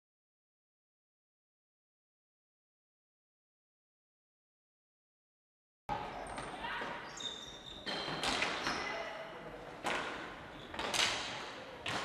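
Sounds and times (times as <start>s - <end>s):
hockey sticks striking ball: 7.8s - 9.0s, 9.8s - 12.0s.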